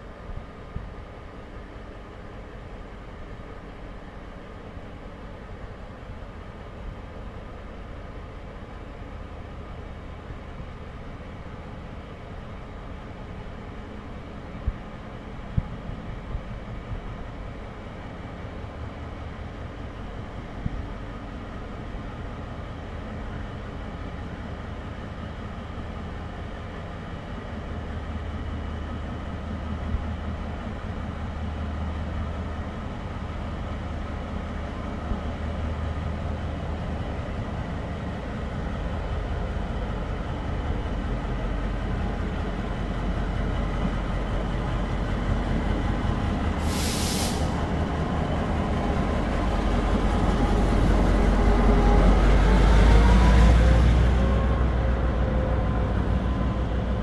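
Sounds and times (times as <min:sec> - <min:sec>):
locomotive engine rumble: 0:09.1 - 0:57.0
air hiss: 0:46.6 - 0:47.7.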